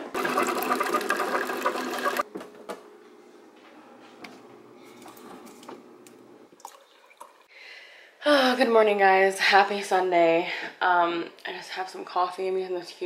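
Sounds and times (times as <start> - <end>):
coffee maker pump running: 0.0 - 2.3.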